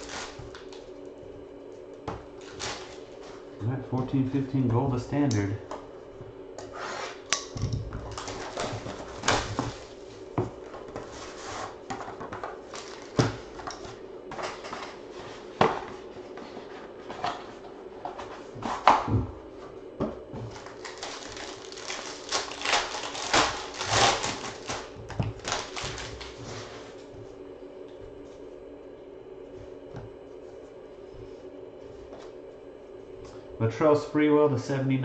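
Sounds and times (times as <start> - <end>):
plastic wrap and cardboard crinkling: 0.0 - 0.9, 2.4 - 3.1, 7.1 - 10.0, 12.6 - 14.7, 20.4 - 27.0
faint steady hum: 0.0 - 35.0.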